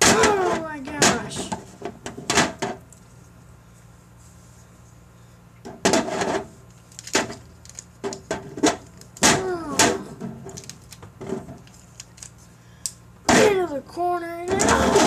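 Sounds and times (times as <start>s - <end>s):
vocal sound effects: 14.5s - 15.0s.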